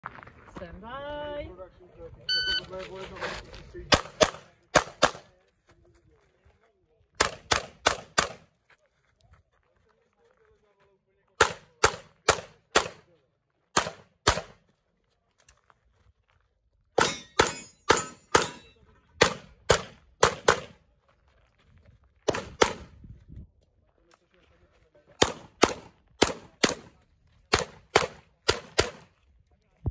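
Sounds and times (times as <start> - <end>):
pistol shots: 3.9 - 5.3, 7.2 - 8.5, 11.4 - 13.1, 13.7 - 14.6, 17.0 - 20.8, 22.3 - 22.9, 25.2 - 29.1.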